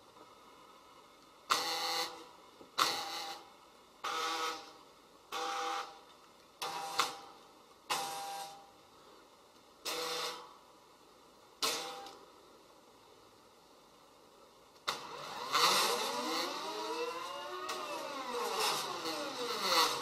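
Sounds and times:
stepper motors whirring: 0:14.9 - 0:20.0.

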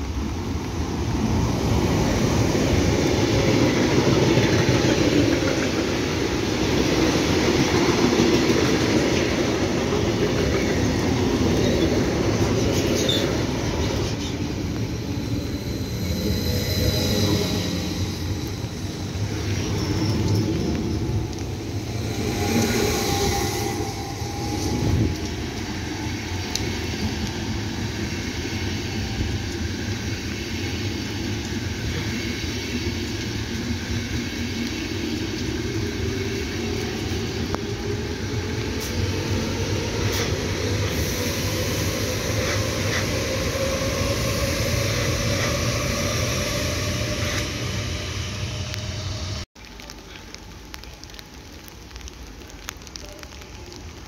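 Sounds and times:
steady rain hiss: 0:00.0 - 0:43.2, 0:49.6 - 0:54.0
train wheels rumbling on rails: 0:00.0 - 0:51.2
rising whine: 0:13.4 - 0:27.4.

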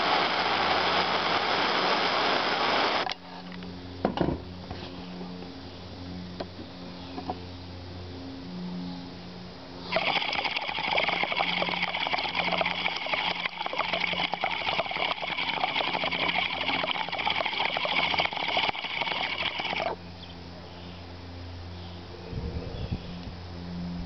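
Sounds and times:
water bubbling in glass pipe: 0:09.9 - 0:20.0.

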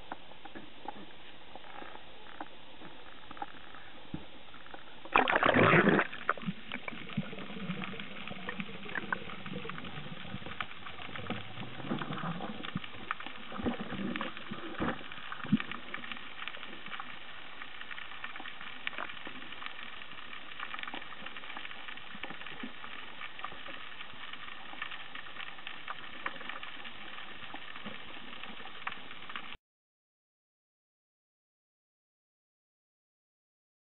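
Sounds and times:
crackle of fine clicks: 0:00.0 - 0:29.6
low underwater rumbles: 0:00.0 - 0:29.6
bubbling: 0:00.1 - 0:29.6
underwater splash: 0:05.0 - 0:29.6.

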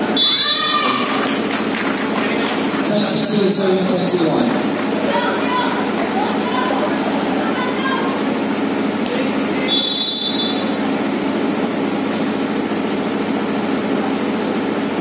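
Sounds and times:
whistle blast: 0:00.1 - 0:00.8, 0:09.6 - 0:10.8.

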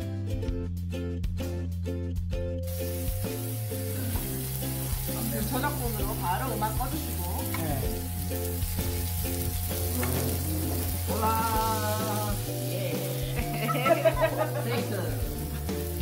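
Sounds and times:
background music with bass beat: 0:00.0 - 0:04.7
meat sizzling on a grill pan: 0:02.7 - 0:16.0
tongs moving meat: 0:03.1 - 0:16.0.

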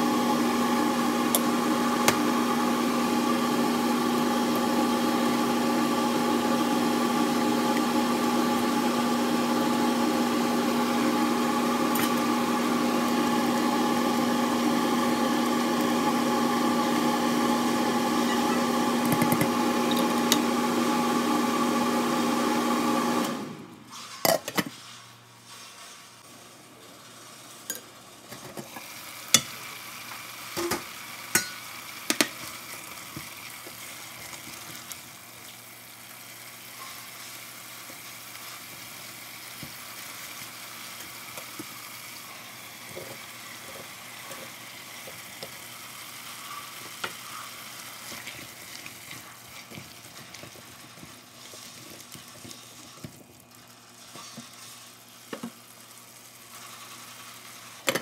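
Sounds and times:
potatoes sizzling in a pot: 0:00.0 - 0:23.2, 0:23.9 - 0:58.0
spatula stirring: 0:46.2 - 0:55.5.

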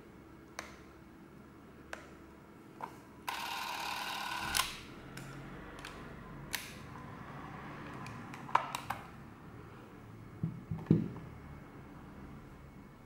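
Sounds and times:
camera motor running: 0:03.3 - 0:04.8.

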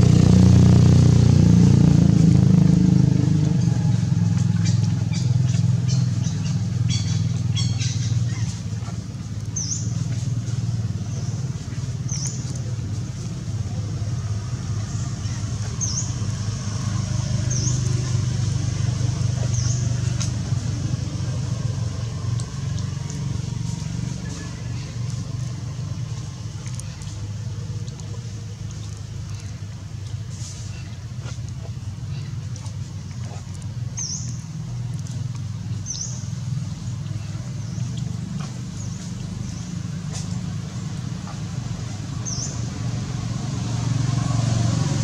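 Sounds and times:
low motor hum: 0:00.0 - 0:45.0
steady low rumble: 0:00.0 - 0:45.0.

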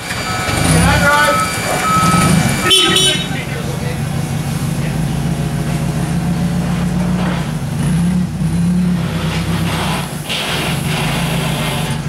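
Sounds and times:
forklift engine running: 0:00.0 - 0:12.0.

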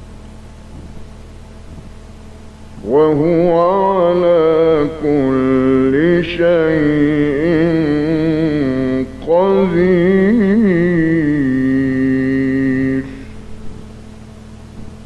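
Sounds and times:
man reciting melodically: 0:02.8 - 0:13.3.

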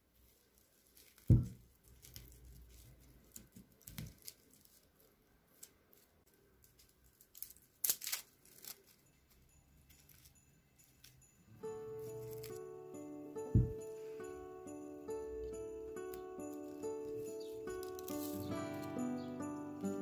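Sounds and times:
coconut husk tearing: 0:00.2 - 0:09.0
dull thump: 0:13.4 - 0:13.9.

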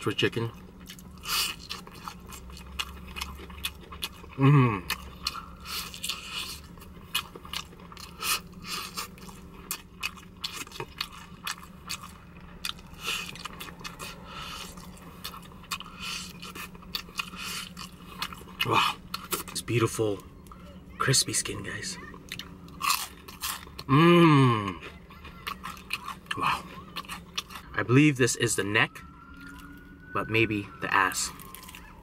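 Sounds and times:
person humming mmm: 0:04.4 - 0:05.0, 0:23.9 - 0:24.8, 0:26.3 - 0:26.7
crunching bites of fried chicken: 0:22.4 - 0:23.9.

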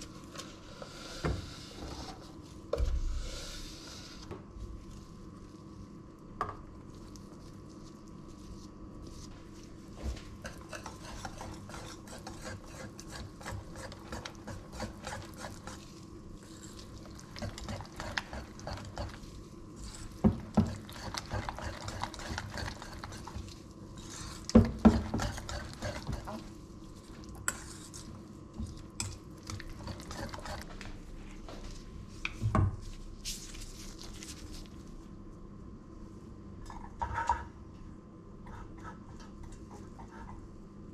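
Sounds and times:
faint steady hum: 0:00.0 - 0:40.9
utensil scraping a metal bowl: 0:10.4 - 0:26.5.

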